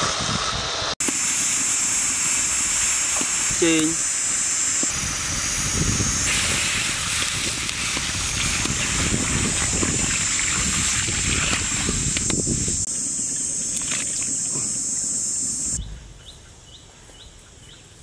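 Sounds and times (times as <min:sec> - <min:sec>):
water pouring into a wok: 0:06.3 - 0:12.0.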